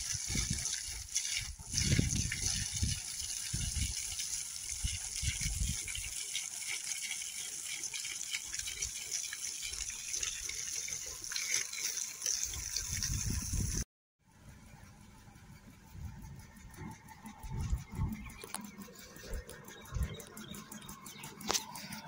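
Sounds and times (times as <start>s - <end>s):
water gushing from a hose: 0.0s - 13.9s.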